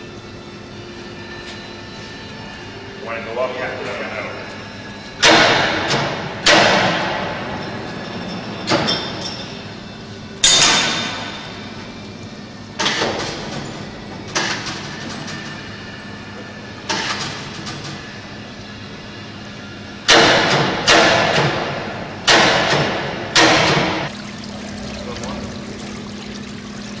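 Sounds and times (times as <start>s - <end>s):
loud metal clanks and bangs: 5.2s - 7.6s, 20.1s - 24.1s.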